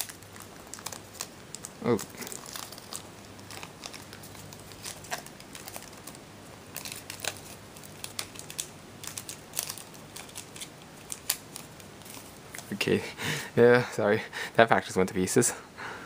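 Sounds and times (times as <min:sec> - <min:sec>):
foil wrapper crinkling and tearing: 0:00.0 - 0:12.8.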